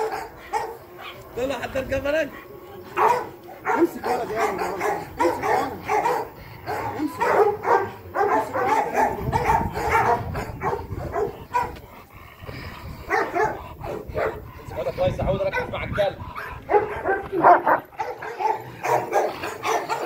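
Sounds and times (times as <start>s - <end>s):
large dog barking aggressively: 0.0s - 1.6s, 2.2s - 20.0s.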